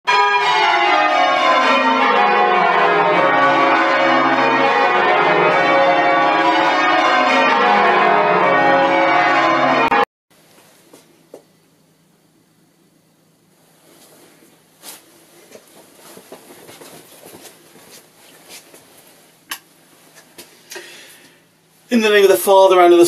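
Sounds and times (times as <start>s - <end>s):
church bells ringing: 0.1s - 10.1s.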